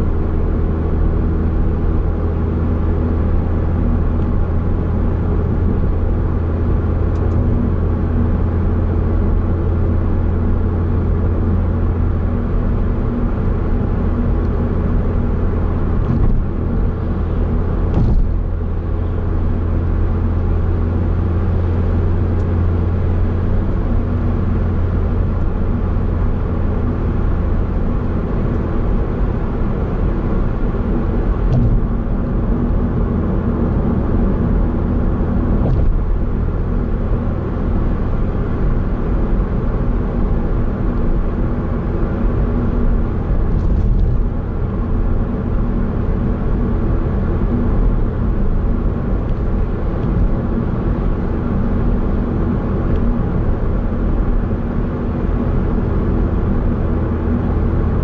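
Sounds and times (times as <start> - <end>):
car road and engine noise: 0.0 - 58.0.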